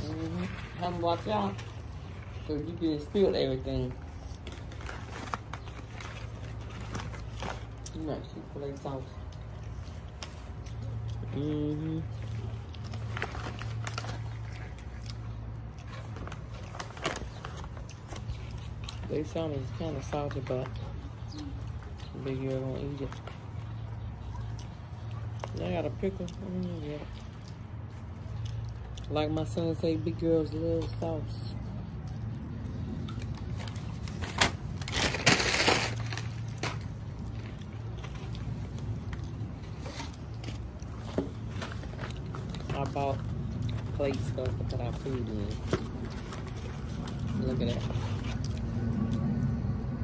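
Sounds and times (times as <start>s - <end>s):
food packaging crackling: 0.0s - 29.8s, 30.5s - 49.4s
steady low hum: 0.0s - 50.0s
packaging crinkling: 33.2s - 48.4s.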